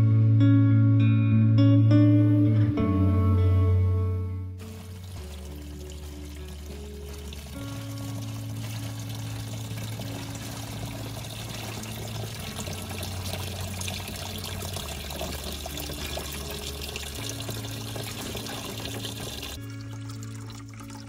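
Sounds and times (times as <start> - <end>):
water pouring into a bucket: 4.6 - 21.0.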